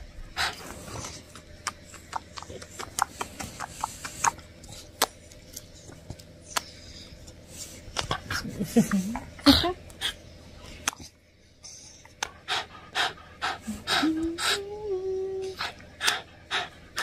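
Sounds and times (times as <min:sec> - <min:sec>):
kissing smacks: 0:01.6 - 0:04.4.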